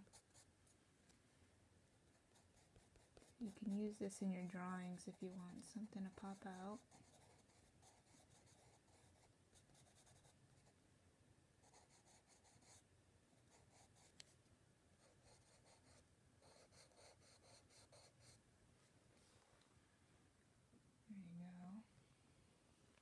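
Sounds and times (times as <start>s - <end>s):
charcoal pencil scratching on paper: 2.1s - 4.0s, 5.1s - 10.7s, 11.7s - 12.8s, 13.5s - 14.2s, 15.0s - 18.4s.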